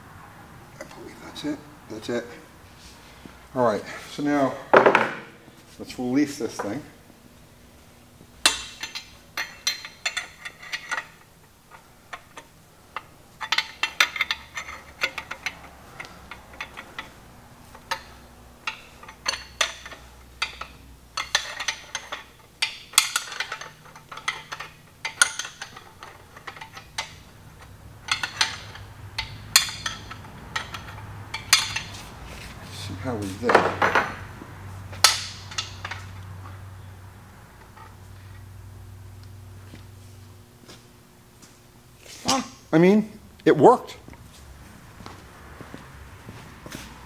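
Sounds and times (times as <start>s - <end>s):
steel parts clinking: 8.4s - 34.2s, 34.9s - 36.6s.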